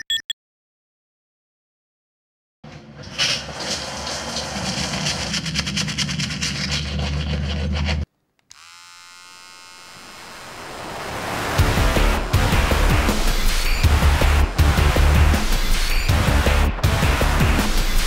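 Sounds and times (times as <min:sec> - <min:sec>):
harsh buzzing with crackle: 0:08.5 - 0:15.2.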